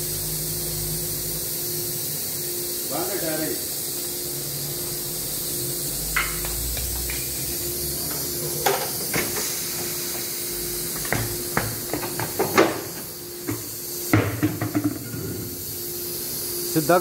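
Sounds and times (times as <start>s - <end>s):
steady hiss: 0.0s - 17.0s
tyre knocking on tiled floor: 14.1s - 15.0s.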